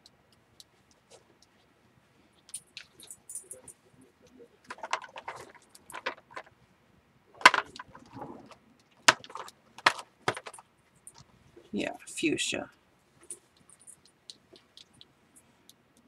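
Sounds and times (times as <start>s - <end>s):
small jars clicking and knocking: 2.5s - 6.5s, 7.4s - 8.2s, 8.8s - 11.3s.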